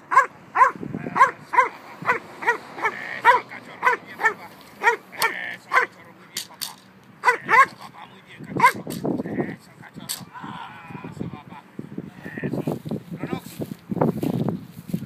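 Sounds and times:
dog barking rapidly: 0.0 - 6.0, 7.2 - 7.9, 8.6 - 8.9.

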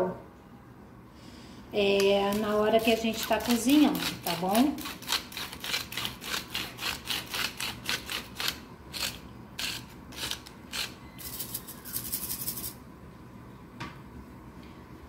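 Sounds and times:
salt grinder grinding: 2.0 - 12.8.

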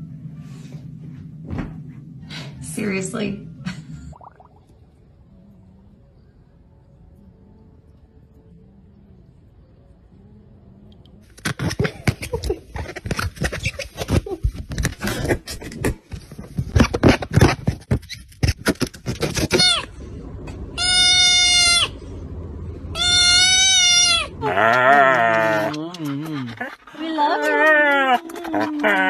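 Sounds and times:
kitten meowing: 23.0 - 24.3.

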